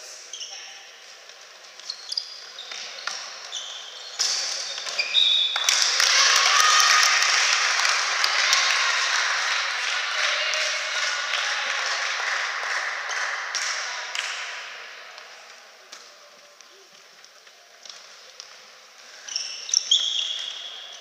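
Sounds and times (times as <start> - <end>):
shoe squeaks: 0.3 - 1.0, 1.8 - 5.6, 19.2 - 21.0
crowd applause and cheering: 5.5 - 15.0.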